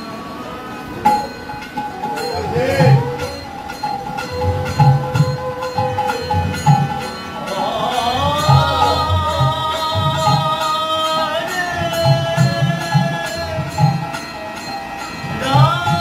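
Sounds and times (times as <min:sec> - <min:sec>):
wavering melody line: 0:00.0 - 0:10.4
harmonium: 0:00.0 - 0:16.0
small hand cymbals: 0:00.0 - 0:16.0
drum strokes: 0:01.0 - 0:07.5.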